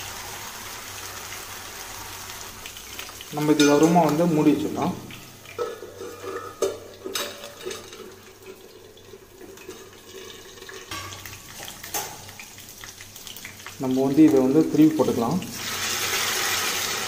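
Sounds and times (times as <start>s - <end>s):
potatoes sizzling in oil: 0.0s - 17.0s
metal lid clinking on pan: 5.6s - 8.1s.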